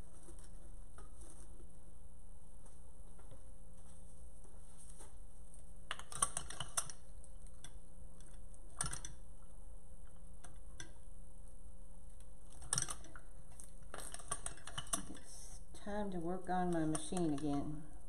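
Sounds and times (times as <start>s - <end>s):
low background hum: 0.0s - 18.0s
clicks and rattles of metal tool: 5.9s - 7.0s, 8.8s - 9.2s, 12.5s - 13.2s, 13.9s - 15.2s.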